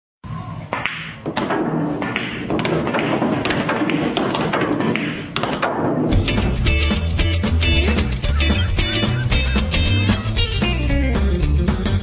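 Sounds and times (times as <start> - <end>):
background noise: 0.2 - 7.7
cue tip hitting cue ball: 0.7 - 6.0
pool balls clicking: 0.7 - 7.1.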